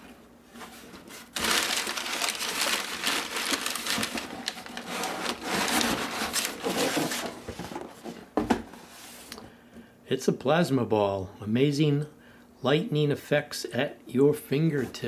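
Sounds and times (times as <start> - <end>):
packing paper crackling and rustling: 0.6 - 8.1.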